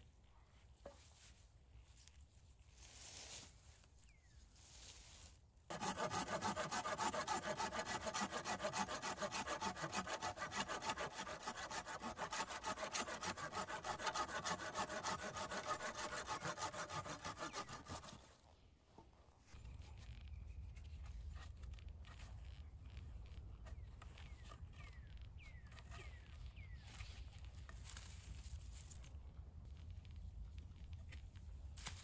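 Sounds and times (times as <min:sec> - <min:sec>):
hand saw cutting wood: 0:05.7 - 0:18.3.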